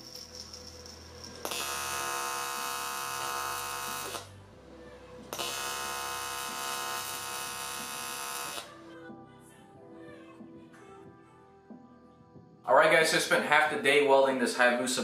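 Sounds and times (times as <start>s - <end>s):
welding arc buzzing: 1.2s - 4.3s, 5.3s - 8.7s.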